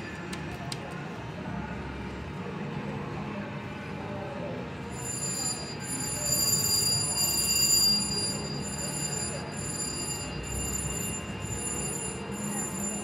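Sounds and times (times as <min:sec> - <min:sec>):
faint voices: 0:00.0 - 0:13.0
slot machine reels spinning: 0:04.9 - 0:13.0.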